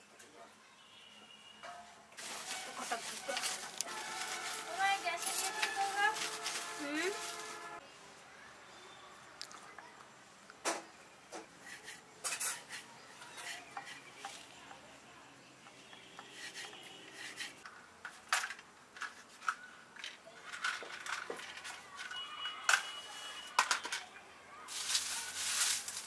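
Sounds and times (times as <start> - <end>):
kitchen utensils clattering: 12.2 - 14.4.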